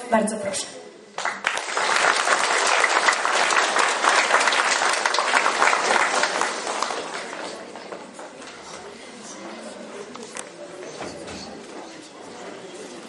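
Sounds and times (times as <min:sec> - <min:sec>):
audience applauding: 0:01.2 - 0:08.0.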